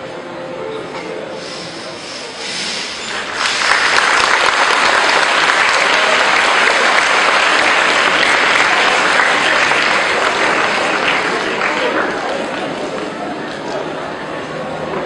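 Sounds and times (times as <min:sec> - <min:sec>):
audience applauding: 0:03.0 - 0:13.8.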